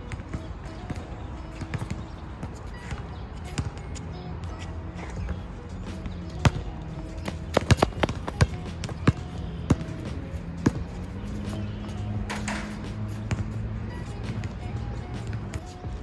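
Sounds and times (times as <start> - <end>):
background music with bass: 0.0 - 16.0
basketball bouncing on hard court: 0.2 - 2.1, 2.7 - 3.8, 5.2 - 13.6.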